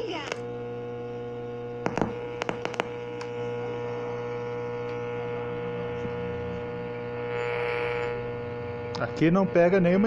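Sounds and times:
steady mains hum: 0.0s - 10.0s
sharp clicks: 1.8s - 3.4s.

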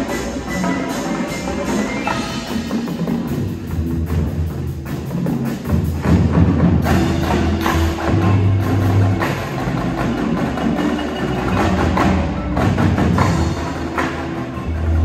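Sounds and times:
marimbas: 0.0s - 5.4s, 6.8s - 15.0s
drumline drums: 0.0s - 15.0s.

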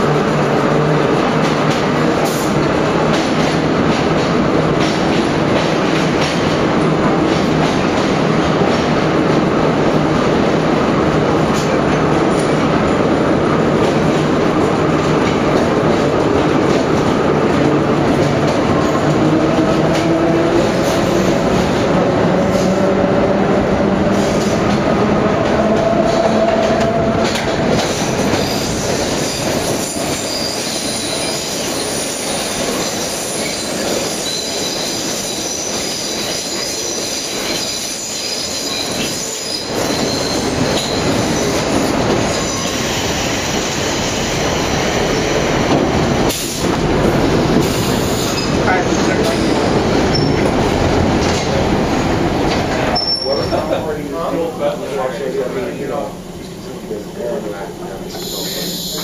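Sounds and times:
subway train rumbling in tunnel: 0.0s - 59.0s
high-pitched wheel squeal: 50.1s - 50.4s, 52.9s - 53.6s.

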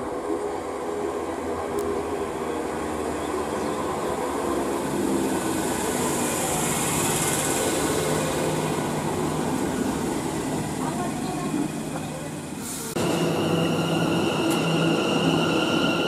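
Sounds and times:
train wheel rumble: 0.0s - 16.0s
train brake hiss: 12.5s - 16.0s.

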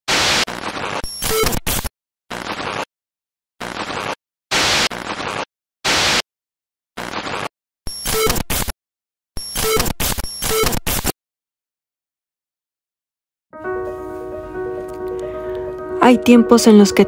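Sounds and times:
radio static bursts: 0.1s - 2.9s, 3.6s - 6.2s, 7.0s - 8.7s, 9.4s - 11.1s
short electronic beeping: 1.0s - 1.6s, 7.9s - 8.7s, 9.4s - 11.1s.

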